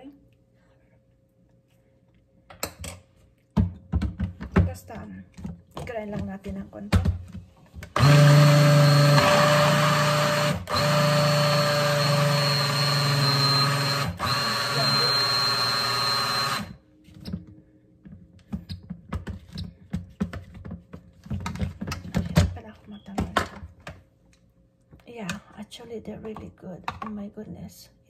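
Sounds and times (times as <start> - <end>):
blender motor grinding: 7.9 - 16.8.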